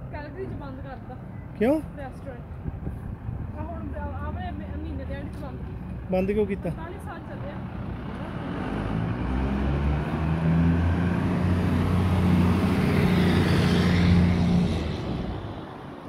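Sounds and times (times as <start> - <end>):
pickup truck driving past: 3.6 - 16.0.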